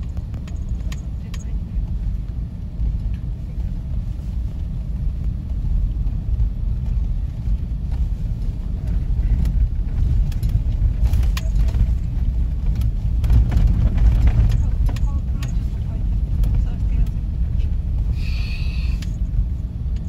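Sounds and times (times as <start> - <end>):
road rumble inside car: 0.0 - 20.0
knocks and rattles: 8.8 - 17.6.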